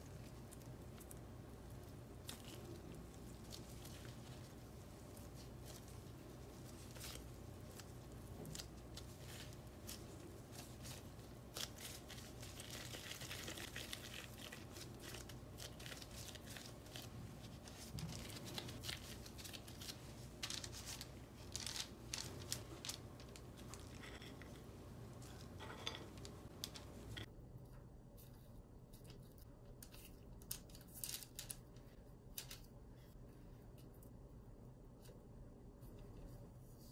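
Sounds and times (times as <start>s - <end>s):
gloves and paper crinkling: 0.0s - 27.3s, 28.2s - 32.7s
hands squishing dough: 0.0s - 27.3s.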